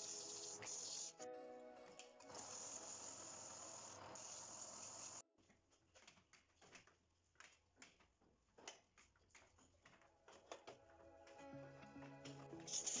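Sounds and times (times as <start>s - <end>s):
sandpaper hissing on spinning wood: 0.0s - 1.2s, 2.4s - 5.2s, 12.6s - 13.0s.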